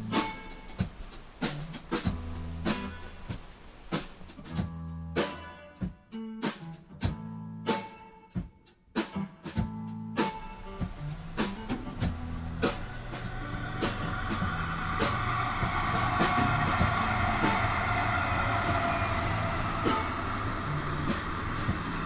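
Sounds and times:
low bass notes: 4.6s - 5.2s, 10.8s - 20.3s
guitar music: 9.1s - 21.5s
sharp rhythmic hits: 10.3s - 22.0s.

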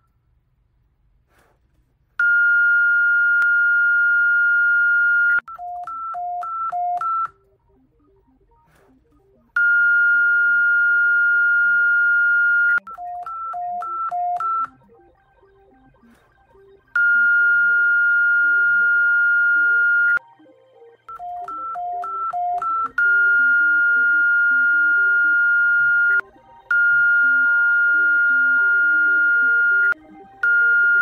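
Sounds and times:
emergency alert alarm tones: 9.5s - 31.0s.

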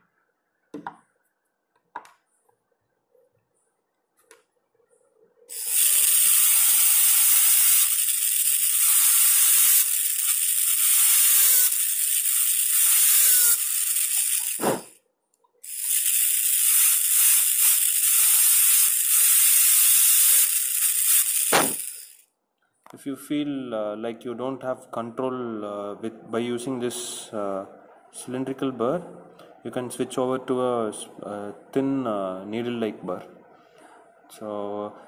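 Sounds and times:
dental drill whining: 5.5s - 15.0s, 15.6s - 22.2s.

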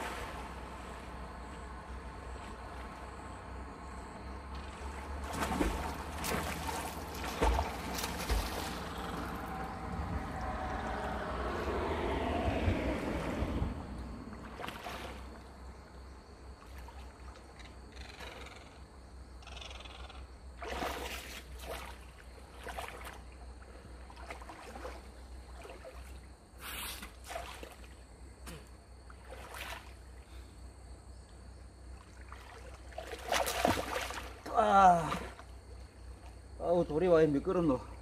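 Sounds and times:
water sloshing from wading: 0.0s - 18.4s, 20.3s - 36.6s.

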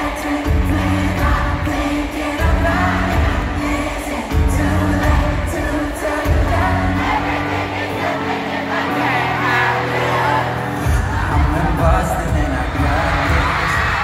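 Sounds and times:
faint crowd: 0.0s - 14.0s
live pop band with singing: 0.0s - 14.0s.

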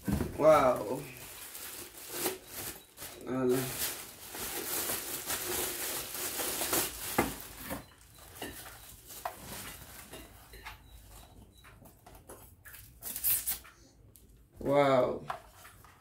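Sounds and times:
plastic bag crinkling: 0.4s - 10.2s.

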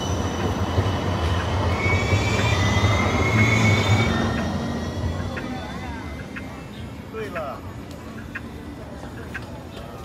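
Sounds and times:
high-pitched tram squeal: 0.0s - 6.7s
tram low rumble: 0.0s - 10.0s.

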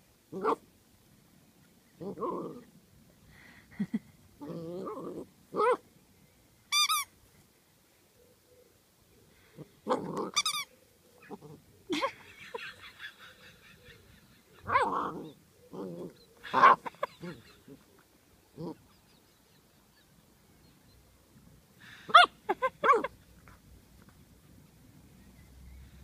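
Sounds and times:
squeaky toy squeaks: 6.7s - 7.1s, 10.3s - 10.7s
puppy barking and yipping: 14.6s - 15.8s, 16.4s - 17.7s, 22.1s - 23.2s.

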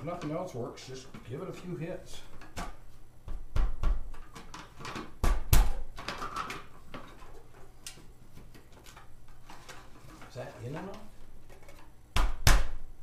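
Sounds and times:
plastic parts clicking and tapping: 4.0s - 5.3s, 6.0s - 12.3s.

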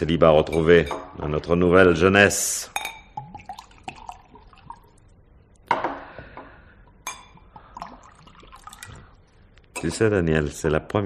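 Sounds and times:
glassware clinking: 0.4s - 1.2s, 2.7s - 4.7s, 7.0s - 7.4s
drink poured into glass: 3.2s - 5.0s, 7.6s - 9.1s.

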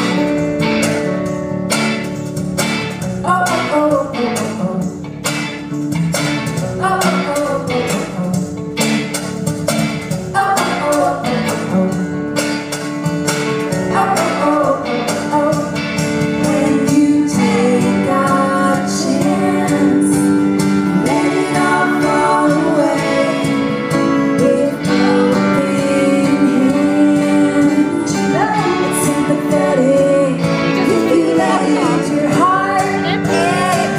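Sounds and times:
drum kit: 0.0s - 33.9s
electric and acoustic guitars: 0.0s - 33.9s
women singing: 6.8s - 8.2s, 10.3s - 11.9s, 13.9s - 15.8s, 16.4s - 33.9s.

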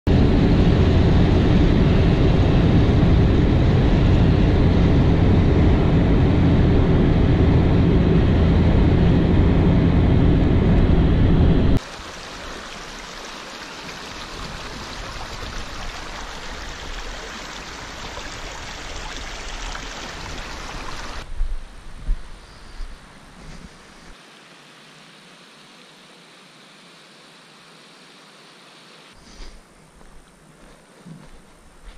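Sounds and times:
car interior road rumble: 0.1s - 11.8s
stream trickling over rocks: 11.8s - 21.2s.

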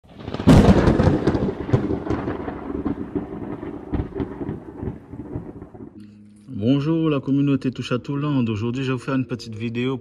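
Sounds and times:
thunder crack and rumble: 0.0s - 6.0s.

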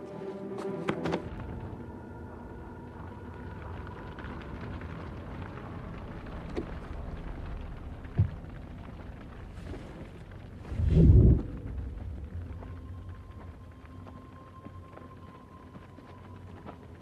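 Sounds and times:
low steady rumble: 1.4s - 16.6s.

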